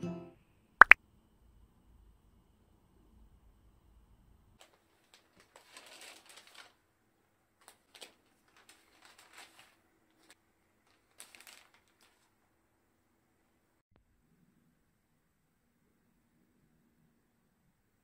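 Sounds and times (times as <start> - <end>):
paper bag rustling: 4.6 - 6.8, 7.6 - 12.4
plastic bag handled: 4.6 - 6.8, 7.6 - 10.3, 10.9 - 12.3.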